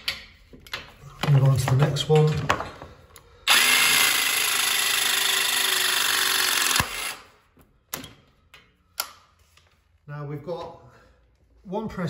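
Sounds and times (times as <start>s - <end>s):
press tool motor running: 3.5s - 7.3s.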